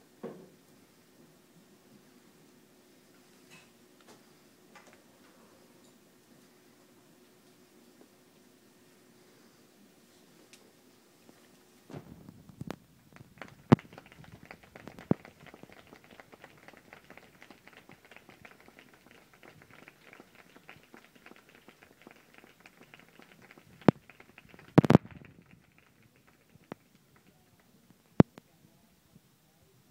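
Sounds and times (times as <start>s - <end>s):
audience applauding: 13.1s - 27.6s.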